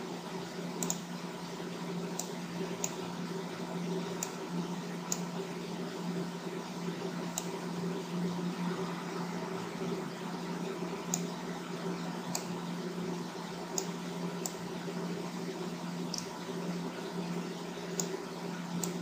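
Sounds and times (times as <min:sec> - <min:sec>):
computer fan humming: 0:00.0 - 0:19.0
mouse clicks: 0:00.8 - 0:01.0, 0:05.1 - 0:05.3, 0:12.3 - 0:12.5, 0:16.1 - 0:16.3, 0:18.8 - 0:19.0.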